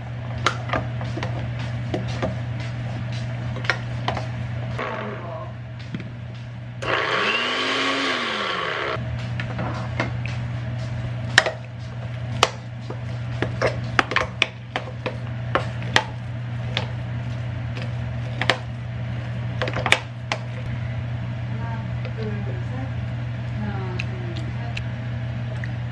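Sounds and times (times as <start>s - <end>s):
blender running: 4.8s - 5.3s, 6.8s - 9.0s.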